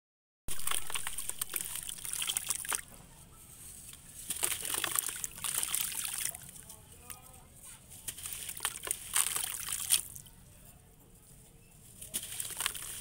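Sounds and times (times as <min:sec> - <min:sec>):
water trickling and dripping: 0:00.5 - 0:02.9
wet clay crumbling in hands: 0:04.2 - 0:06.6, 0:08.1 - 0:10.3, 0:12.0 - 0:13.0.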